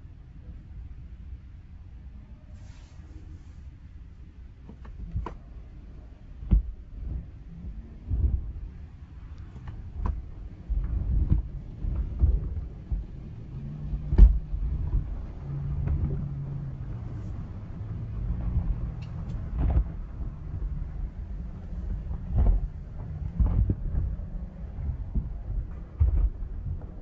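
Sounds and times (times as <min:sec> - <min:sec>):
low rumble: 0:00.0 - 0:27.0
cloth strips slapping on car: 0:04.6 - 0:27.0.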